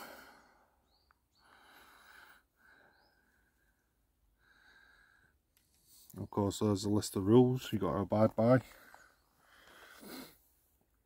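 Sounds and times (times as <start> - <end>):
faint breaths: 0.0 - 6.2, 8.6 - 10.8.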